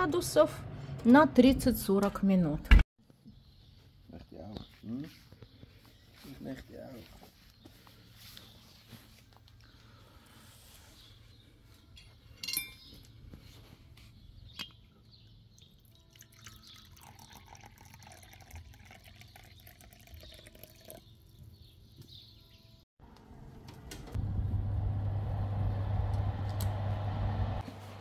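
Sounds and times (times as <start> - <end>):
tea pouring into a cup: 15.6 - 21.0.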